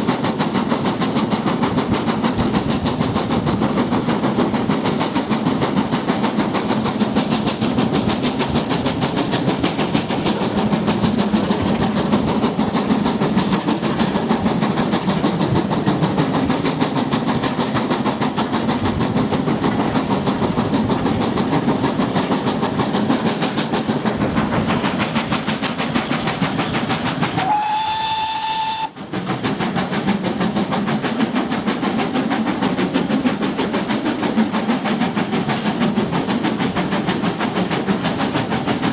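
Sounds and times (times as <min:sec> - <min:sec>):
train rumbling and clattering: 0:00.0 - 0:38.9
steam whistle blast: 0:27.4 - 0:29.0.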